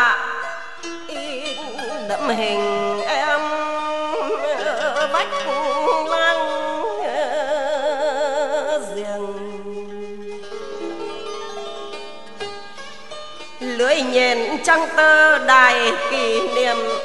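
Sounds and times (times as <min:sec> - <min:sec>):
traditional ensemble music: 0:00.0 - 0:07.1, 0:09.1 - 0:17.0
plucked zither notes: 0:00.0 - 0:17.0
bamboo flute melody: 0:01.1 - 0:08.6, 0:14.7 - 0:17.0.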